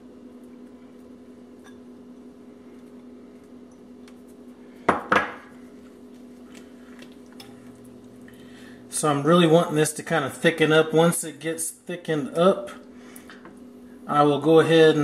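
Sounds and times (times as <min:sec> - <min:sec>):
steady low hum: 0:00.0 - 0:15.0
glass bowl clinking: 0:01.6 - 0:01.9.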